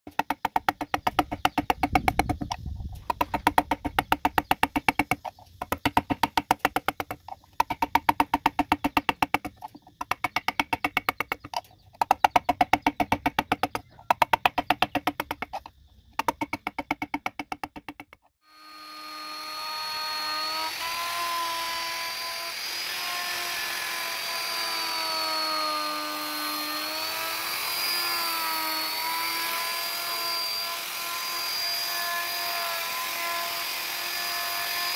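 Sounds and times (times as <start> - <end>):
mallet tapping gouge: 0.1 - 15.6, 16.2 - 18.3
electric wood router whining: 18.4 - 34.9.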